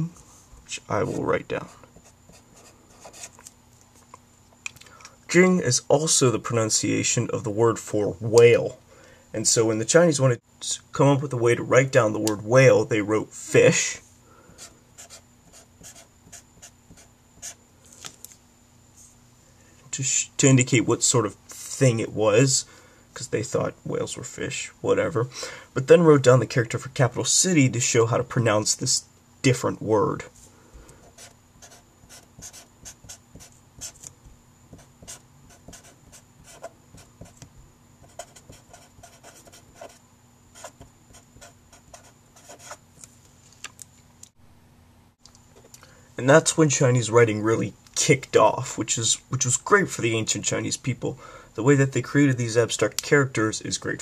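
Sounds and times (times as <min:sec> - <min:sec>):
marker scratching on paper: 0:02.0 - 0:03.4, 0:14.6 - 0:17.6, 0:31.1 - 0:34.1, 0:34.7 - 0:40.0, 0:40.6 - 0:42.8.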